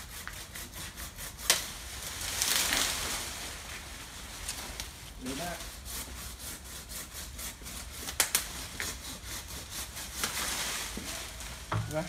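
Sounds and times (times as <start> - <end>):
pruning saw strokes on branch: 0.0 - 12.0
branch cracking: 1.5 - 5.0, 8.1 - 8.5, 10.2 - 12.0.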